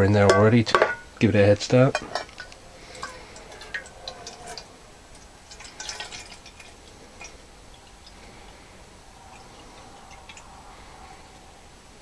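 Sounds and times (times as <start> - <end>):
water pouring into metal kettle: 2.3 - 8.6.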